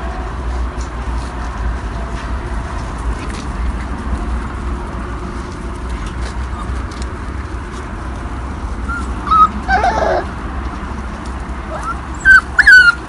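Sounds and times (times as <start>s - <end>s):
steady low rumble: 0.0s - 12.6s
puppy yipping: 8.8s - 10.3s, 11.6s - 13.0s.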